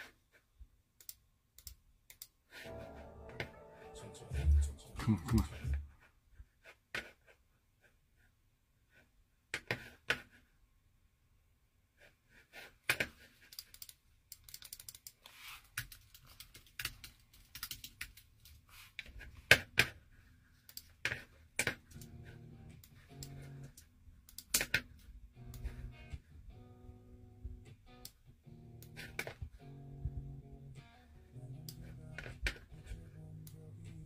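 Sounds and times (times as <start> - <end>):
held pitched notes: 2.7 - 6.0.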